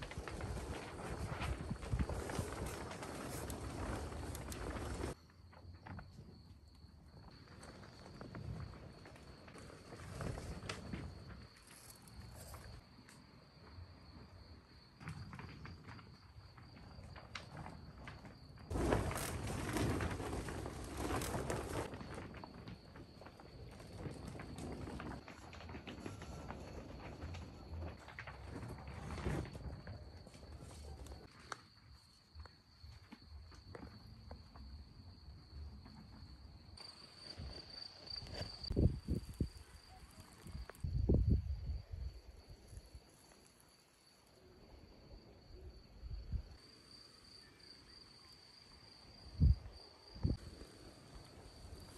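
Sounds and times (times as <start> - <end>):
rustling: 0.0 - 5.2, 18.7 - 31.6
cricket trilling: 0.0 - 51.9.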